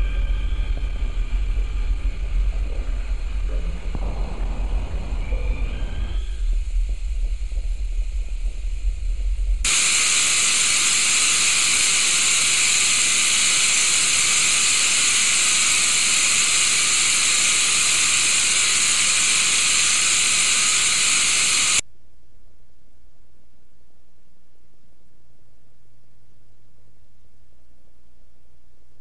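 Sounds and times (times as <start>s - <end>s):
low rumble: 0.0s - 9.7s
faint low hum: 0.0s - 18.8s, 21.2s - 29.0s
television static hiss: 9.7s - 21.8s.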